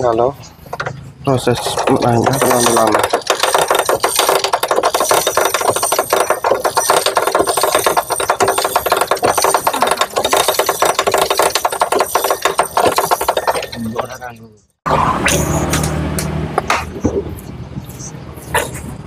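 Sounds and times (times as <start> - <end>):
engine rattling turned by hand: 0.0 - 14.2.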